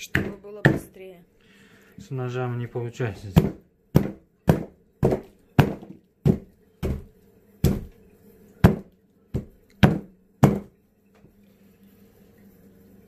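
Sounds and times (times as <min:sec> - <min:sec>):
hatchet chopping on wooden block: 0:03.4 - 0:07.9, 0:08.6 - 0:10.7.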